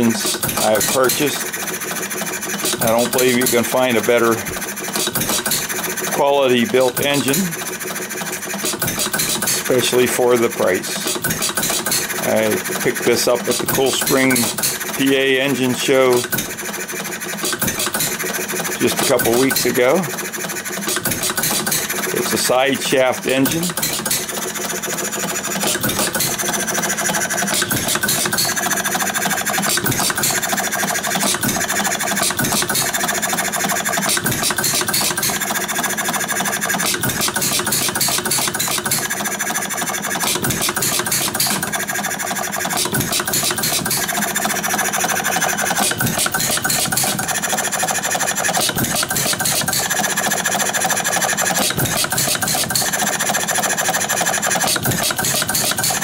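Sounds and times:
hit-and-miss engine clatter: 0.0 - 56.0.

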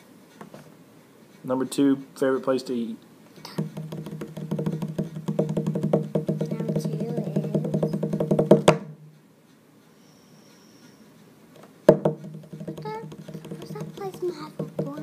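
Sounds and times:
hand taps drum roll: 3.5 - 9.1, 11.9 - 15.0.

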